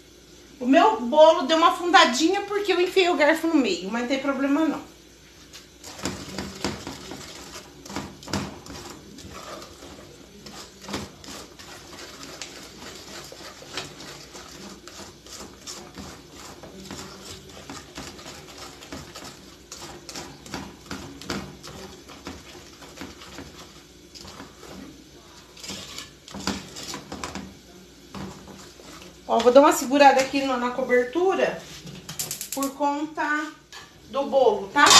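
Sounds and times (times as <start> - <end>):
spoon scraping a saucepan: 5.4 - 30.8.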